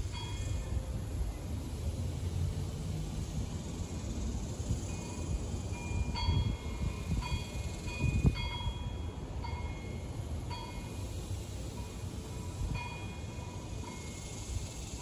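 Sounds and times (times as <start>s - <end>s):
wind blowing over microphone: 4.6s - 8.9s.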